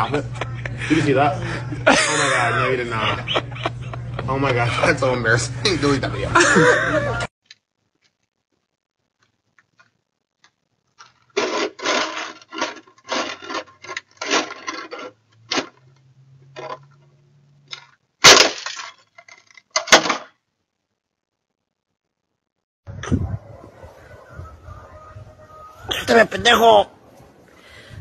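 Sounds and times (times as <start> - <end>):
sharp clatter: 11.0 - 15.9, 17.7 - 20.4
plastic shovel scraping snow on concrete: 11.4 - 15.2
shovel breaking with a loud crack: 18.2 - 19.0.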